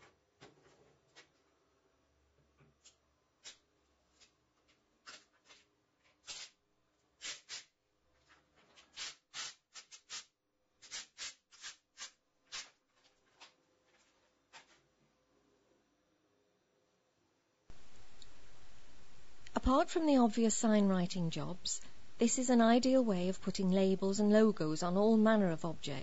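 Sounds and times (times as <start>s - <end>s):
tape rubbed and peeled: 2.8s - 3.6s, 5.0s - 6.6s, 7.2s - 7.7s, 8.8s - 13.6s.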